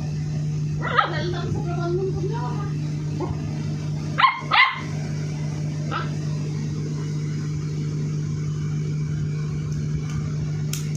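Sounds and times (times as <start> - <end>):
steady low hum: 0.0 - 10.9
puppy yipping: 0.8 - 1.2, 4.2 - 4.9.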